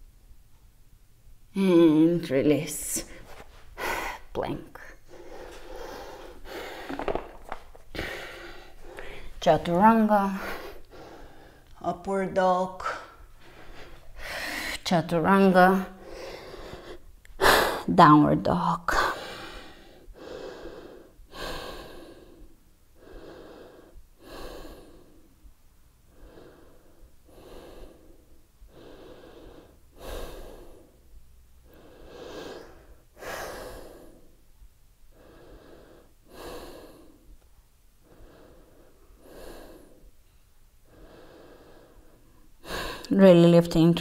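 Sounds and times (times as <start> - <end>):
woman breathing deeply: 3.0 - 11.7, 13.0 - 14.9, 15.9 - 17.9, 19.0 - 25.5, 26.1 - 34.5, 35.1 - 37.4, 38.0 - 43.1.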